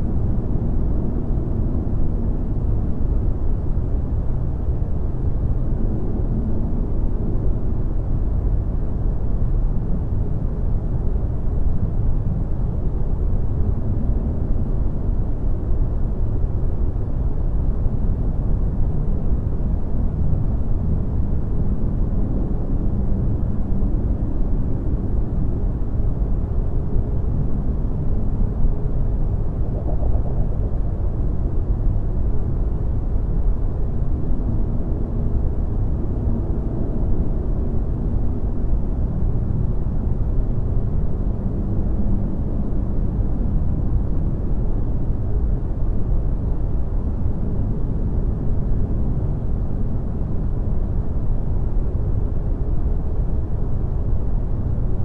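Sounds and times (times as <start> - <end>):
low rumbling drone: 27.0 - 45.8.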